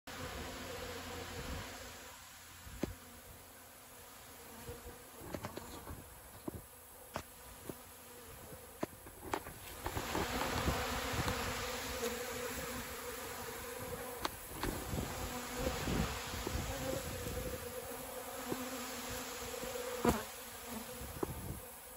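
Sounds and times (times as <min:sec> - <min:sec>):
bees buzzing: 0:00.1 - 0:21.9.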